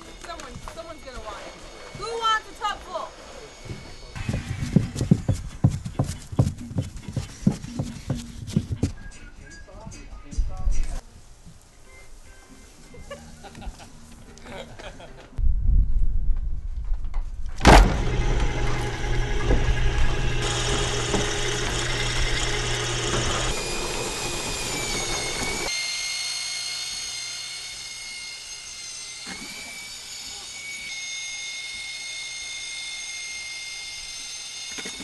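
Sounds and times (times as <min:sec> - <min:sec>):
high-pitched whine: 0:00.0 - 0:05.3
drum mixer motor humming and whining: 0:17.9 - 0:25.7.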